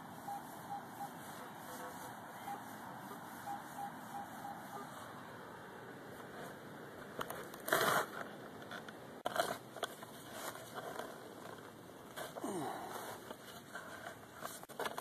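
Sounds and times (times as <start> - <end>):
shovel digging soil: 7.2 - 8.3, 9.2 - 15.0.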